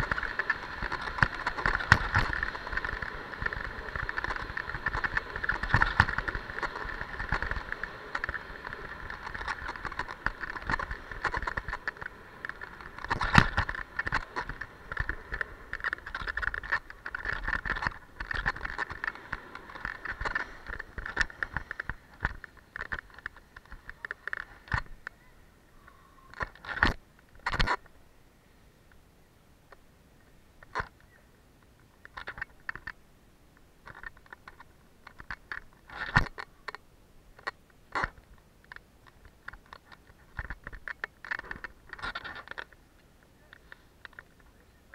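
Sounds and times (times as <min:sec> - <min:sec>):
skis scraping over snow: 0:00.0 - 0:22.8.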